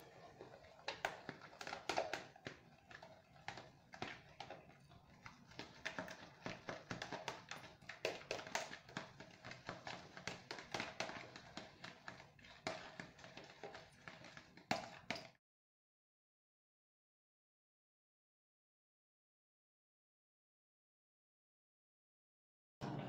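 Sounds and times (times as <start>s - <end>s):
food mixed in plastic jug: 0.0s - 15.4s.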